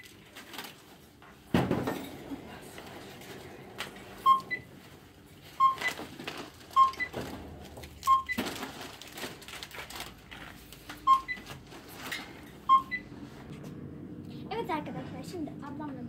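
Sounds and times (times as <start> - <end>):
checkout scanner beeping: 3.0 - 8.8, 11.0 - 13.1.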